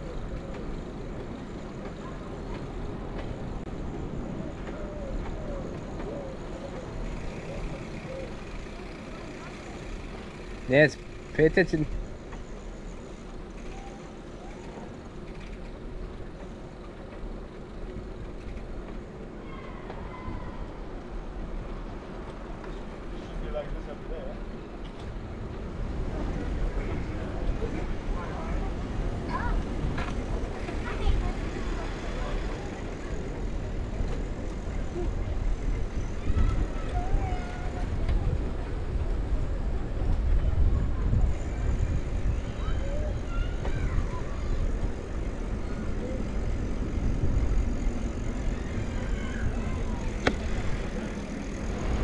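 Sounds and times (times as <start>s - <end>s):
bicycle rolling noise: 0.0s - 52.0s
street noise low rumble: 0.0s - 52.0s
wind buffeting microphone: 25.2s - 52.0s.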